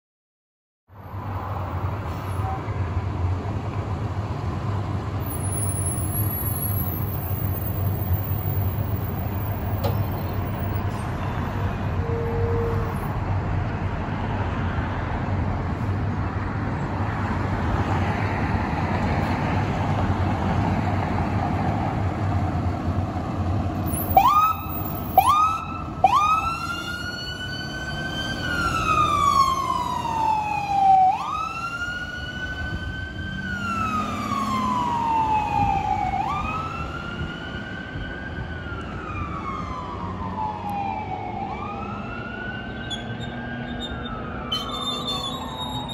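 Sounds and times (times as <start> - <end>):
fire engine rumble: 1.6 - 42.6
electronic siren whooping and wailing: 24.1 - 37.8, 39.0 - 45.9.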